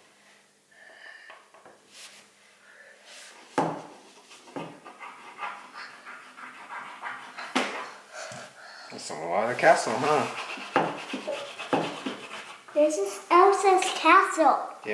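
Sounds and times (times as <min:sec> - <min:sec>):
crayon scribbling on paper: 0:04.2 - 0:08.0, 0:09.5 - 0:12.8.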